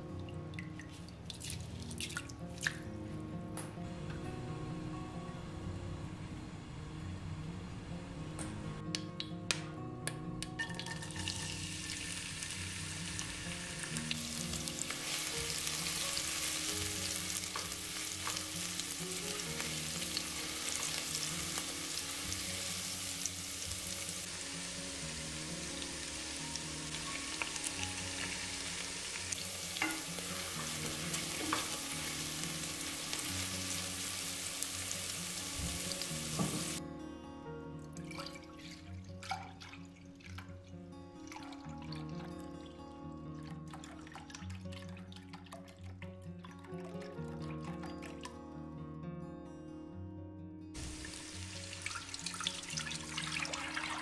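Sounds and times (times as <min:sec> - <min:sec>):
shallots sizzling in oil: 0:10.6 - 0:36.8, 0:50.8 - 0:54.0.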